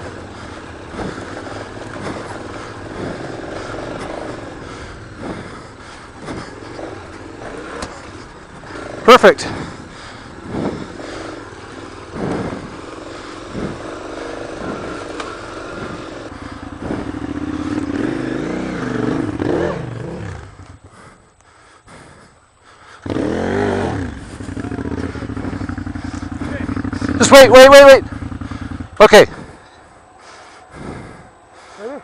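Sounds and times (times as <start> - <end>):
knocks and clatter from bikes: 0.0 - 14.0, 24.2 - 29.6
motorcycle engines revving: 0.0 - 32.0.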